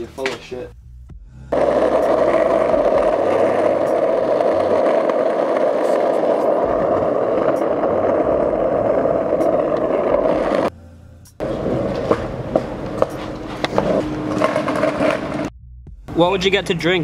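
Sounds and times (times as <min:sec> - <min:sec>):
skateboard wheels rolling on asphalt: 0:01.5 - 0:10.7, 0:11.4 - 0:15.5.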